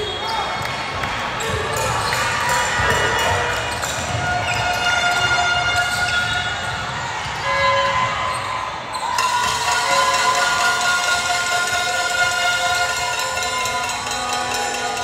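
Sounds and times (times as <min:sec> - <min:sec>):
sneakers squeaking: 0:00.0 - 0:10.2
voices echoing in a hall: 0:00.0 - 0:15.0
basketball bouncing: 0:01.4 - 0:07.4.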